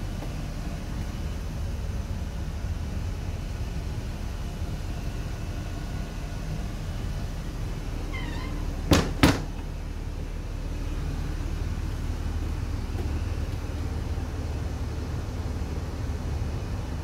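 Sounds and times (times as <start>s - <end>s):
steady low hum: 0.0s - 17.0s
high squeak: 8.1s - 8.6s
sharp knocks: 8.9s - 9.6s.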